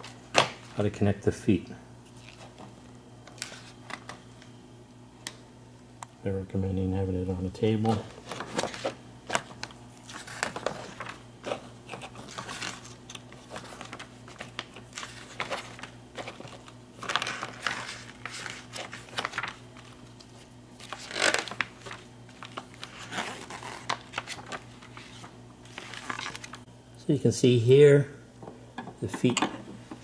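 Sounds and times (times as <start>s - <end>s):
paper pages rustling: 2.0s - 4.2s, 7.8s - 26.7s
page flips: 3.3s - 4.5s, 7.8s - 26.7s.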